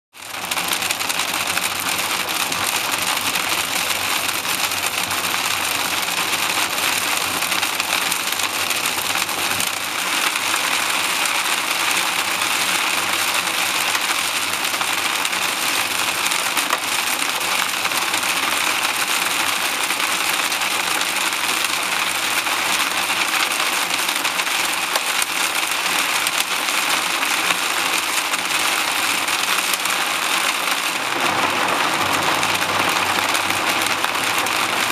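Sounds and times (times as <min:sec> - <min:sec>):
hail and rain drumming on car roof: 0:00.2 - 0:34.9
car road noise: 0:29.9 - 0:34.9.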